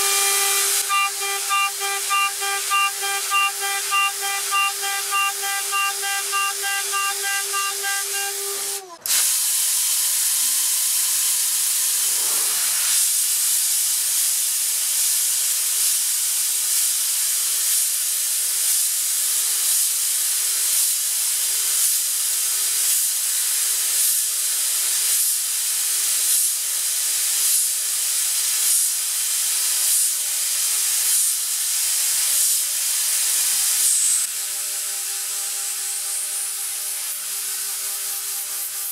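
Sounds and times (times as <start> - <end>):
router spindle hum: 0.0 - 9.2
sped-up machining with high tone: 0.0 - 10.0, 33.8 - 38.9.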